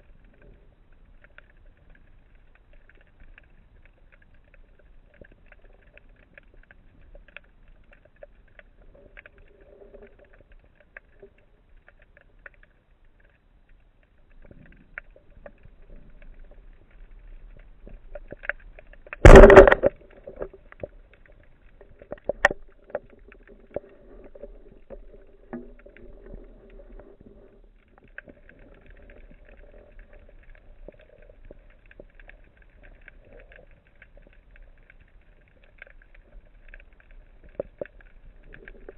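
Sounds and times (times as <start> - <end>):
speargun firing crack underwater: 19.2 - 20.5.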